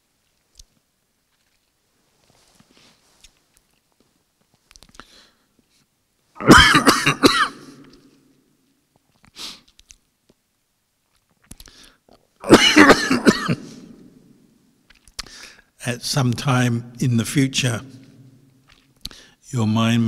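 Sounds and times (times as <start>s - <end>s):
man coughing: 6.4s - 7.8s, 12.4s - 14.0s.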